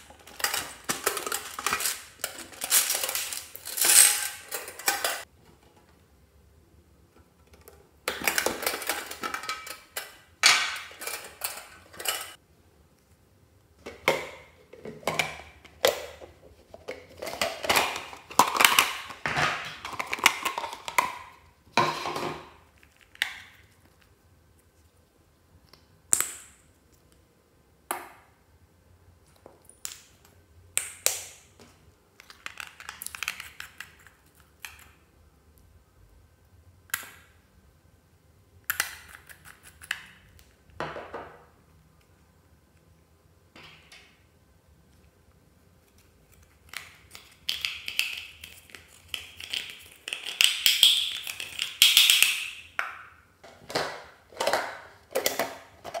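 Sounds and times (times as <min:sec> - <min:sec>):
plastic and glass items clattering: 0:00.0 - 0:05.8, 0:53.4 - 0:56.0.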